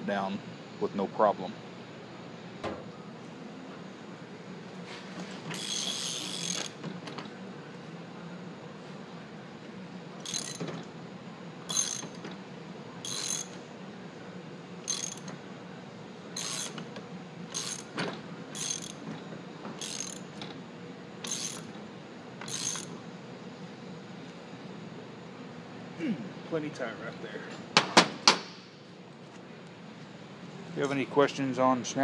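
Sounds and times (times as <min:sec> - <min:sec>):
steady low hum: 0:00.0 - 0:32.0
ratchet wrench clicking: 0:05.5 - 0:06.8, 0:10.2 - 0:10.6, 0:11.7 - 0:12.2, 0:13.0 - 0:13.5, 0:14.9 - 0:15.3, 0:16.4 - 0:16.8, 0:17.5 - 0:17.9, 0:18.6 - 0:19.0, 0:19.8 - 0:20.2, 0:21.2 - 0:21.7, 0:22.4 - 0:22.9.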